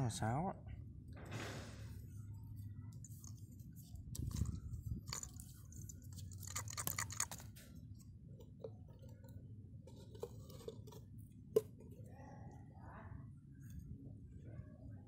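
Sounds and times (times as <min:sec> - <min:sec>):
plastic cap twisting rasp: 0:04.1 - 0:07.6, 0:09.9 - 0:11.8.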